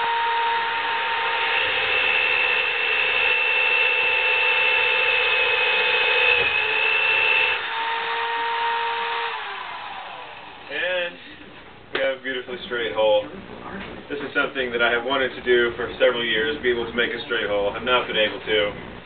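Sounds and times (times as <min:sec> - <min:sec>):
drill bit cutting wood: 0:00.0 - 0:11.0
drill motor whining: 0:00.0 - 0:11.7.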